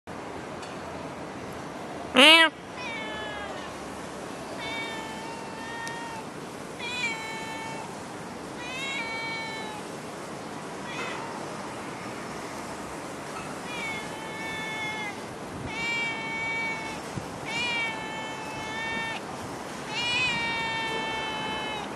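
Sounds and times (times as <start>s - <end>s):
steady background hiss: 0.1s - 21.9s
cat meowing: 2.2s - 3.8s, 4.5s - 9.9s, 10.8s - 11.5s, 13.4s - 19.2s, 19.8s - 21.9s.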